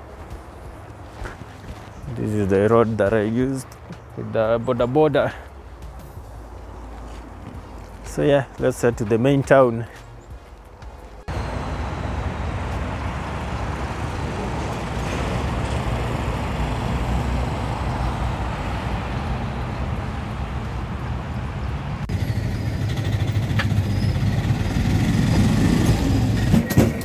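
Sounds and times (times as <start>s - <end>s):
road traffic noise: 0.0s - 27.0s
minibus engine rumble: 10.0s - 27.0s.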